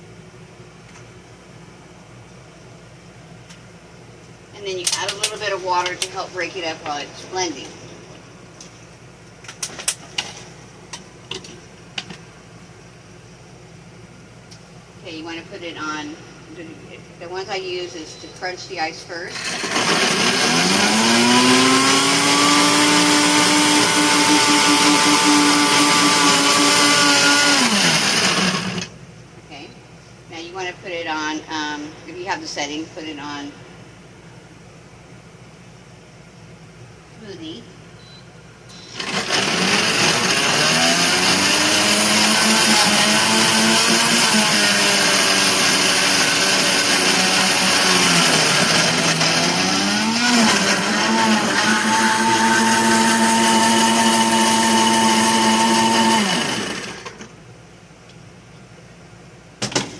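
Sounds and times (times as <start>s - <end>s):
blender crushing ice: 19.4s - 28.9s, 38.9s - 57.2s.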